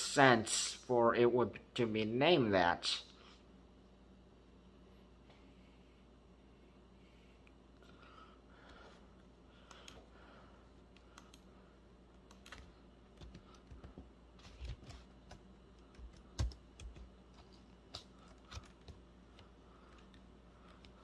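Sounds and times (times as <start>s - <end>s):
typing on computer keyboard: 12.3s - 14.0s, 14.6s - 19.0s.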